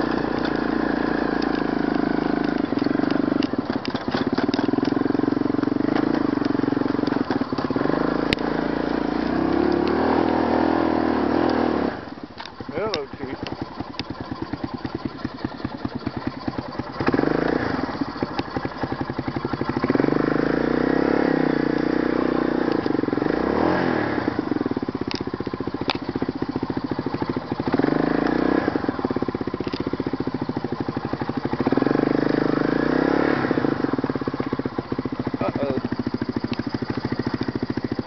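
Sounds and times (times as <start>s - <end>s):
atv engine revving: 0.0s - 38.0s.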